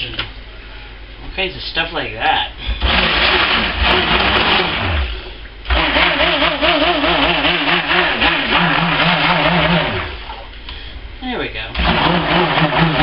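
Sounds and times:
stick blender motor whine: 2.8 - 10.4, 11.8 - 13.0.

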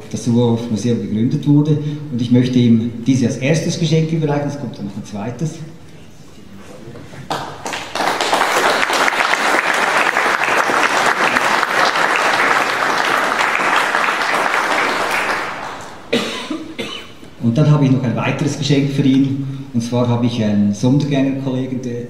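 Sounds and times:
audience applauding: 7.3 - 16.1.

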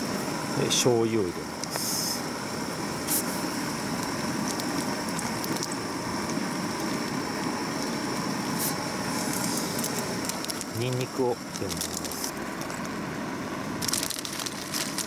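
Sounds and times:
broth bubbling in a pot: 0.0 - 15.0
gas burner hiss: 0.0 - 15.0
sharp hisses: 1.7 - 2.3, 3.0 - 3.6.

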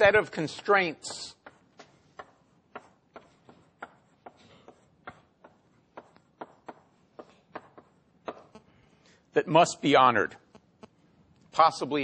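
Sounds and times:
chalk tapping on blackboard: 0.5 - 8.6.

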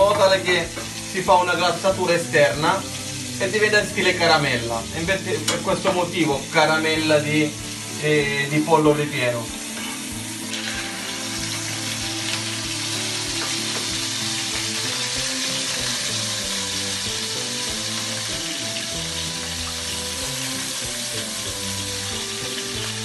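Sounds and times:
chicken sizzling in a frying pan: 0.0 - 23.0.

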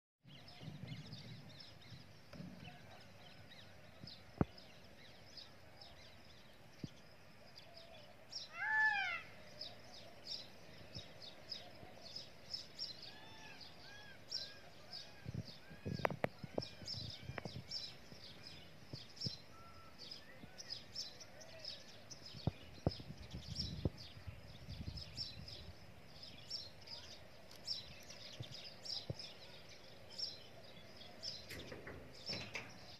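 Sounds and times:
small birds chirping: 0.2 - 32.9
low rumbles: 0.3 - 6.1
loud pitched bird call: 8.4 - 10.1.

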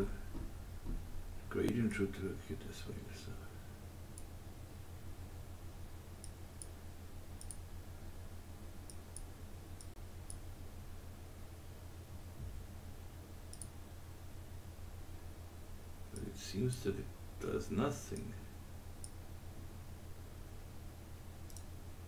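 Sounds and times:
steady low hum: 0.0 - 22.0
computer mouse clicking: 6.2 - 6.8, 7.4 - 7.6, 13.5 - 13.8, 21.4 - 21.7.

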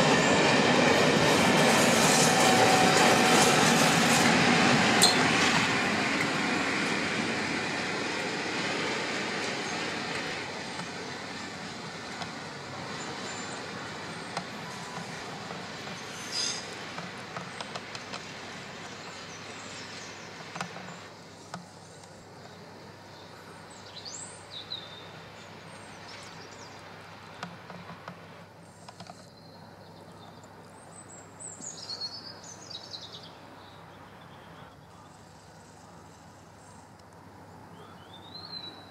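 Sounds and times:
diesel train running: 0.0 - 23.1
bird chirps: 37.7 - 38.9.

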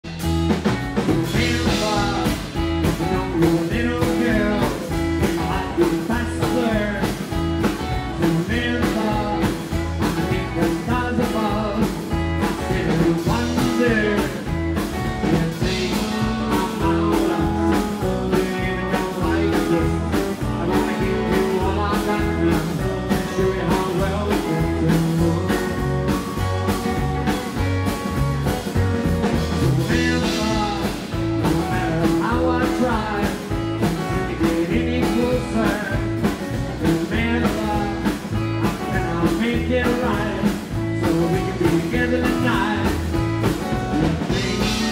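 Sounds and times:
rockabilly band playing: 0.0 - 44.9.

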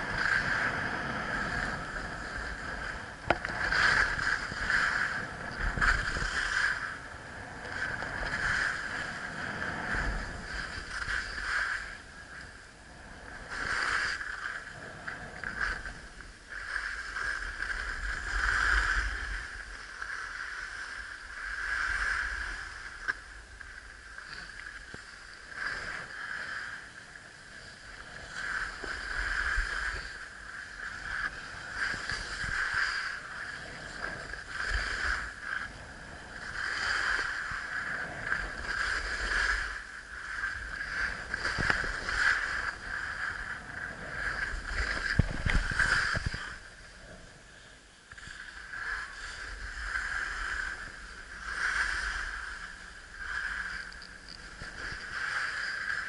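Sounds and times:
skis scraping on snow: 0.0 - 7.1, 7.7 - 12.4, 25.1 - 46.7
wind on microphone: 0.0 - 56.0.

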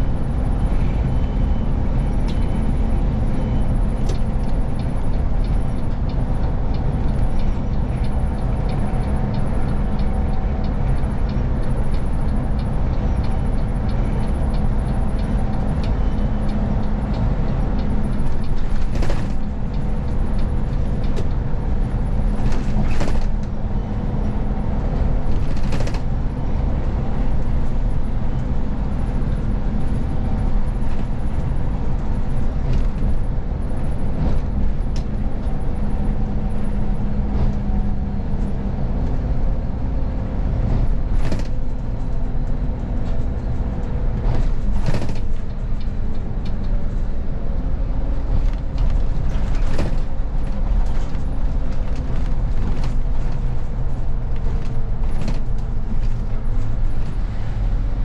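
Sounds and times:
bus engine and tyre drone: 0.0 - 58.0
sharp clicks or rattles: 18.2 - 19.5, 25.3 - 26.0.

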